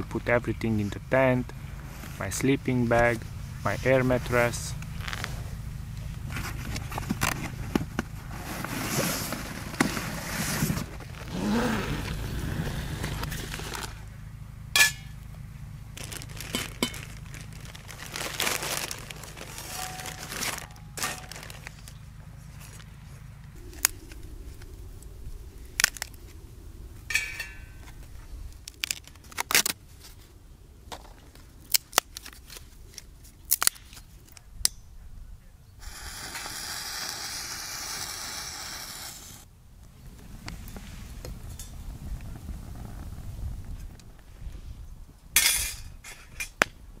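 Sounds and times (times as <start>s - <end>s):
low steady hum: 0.0s - 47.0s
plastic bag crinkling: 15.9s - 22.0s
wooden sticks clacking on metal: 27.1s - 27.8s.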